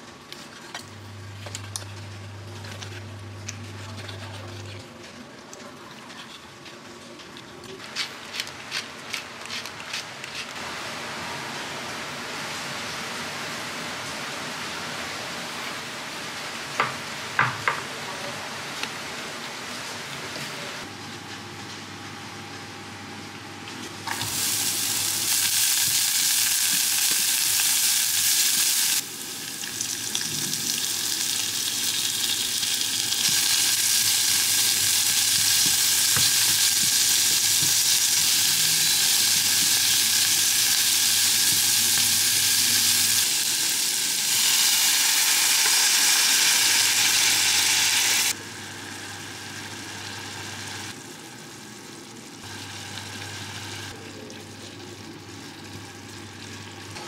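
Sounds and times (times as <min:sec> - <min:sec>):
onion sizzling in oil: 0:24.1 - 0:54.0.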